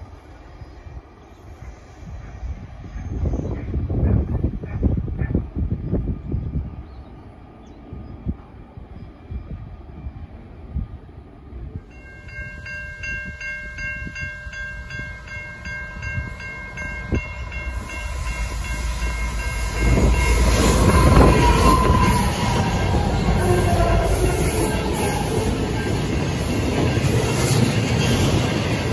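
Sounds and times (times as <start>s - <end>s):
diesel locomotive rumble: 14.1s - 28.9s
pulsing warning tone: 16.0s - 27.3s.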